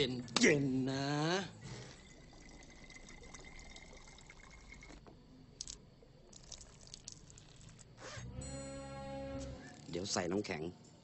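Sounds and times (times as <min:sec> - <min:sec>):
liquid trickling into bottle: 0:01.6 - 0:08.0.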